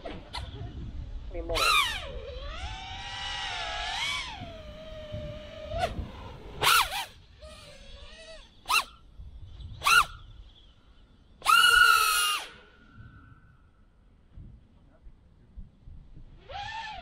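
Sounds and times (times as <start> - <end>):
drone motors whining: 0.0 - 13.8, 16.2 - 17.0.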